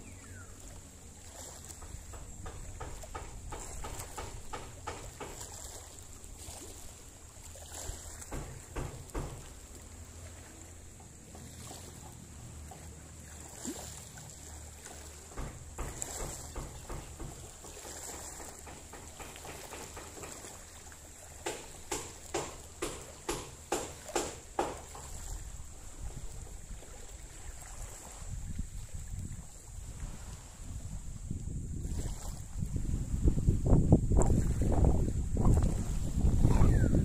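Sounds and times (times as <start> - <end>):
sea water lapping and splashing: 0.0 - 37.0
small knocks: 1.7 - 5.6, 8.2 - 9.7, 15.3 - 20.8, 21.4 - 25.2.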